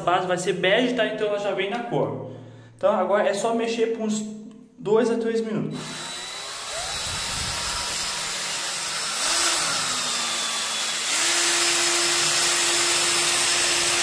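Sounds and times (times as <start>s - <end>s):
electric drill mixer whine: 5.8s - 14.0s.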